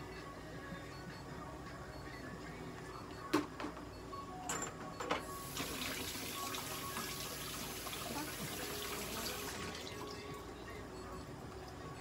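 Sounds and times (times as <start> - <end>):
running water hissing: 5.4 - 10.0.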